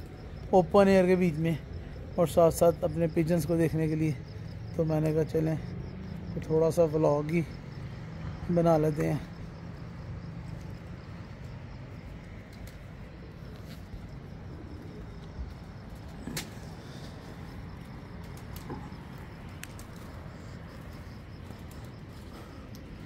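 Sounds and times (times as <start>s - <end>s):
pigeons cooing: 12.6s - 22.8s.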